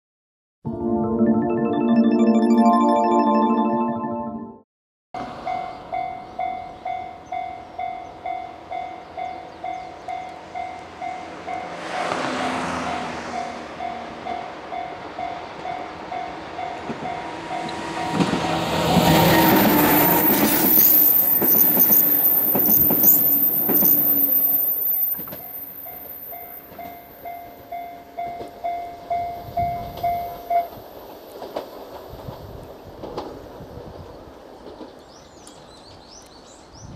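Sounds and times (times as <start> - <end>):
level-crossing bell dinging: 0.7 - 4.5, 13.8 - 29.5
electric train passing: 5.2 - 34.8
high steady squeal: 19.0 - 26.4
train wheels clacking on rail joints: 29.8 - 33.4.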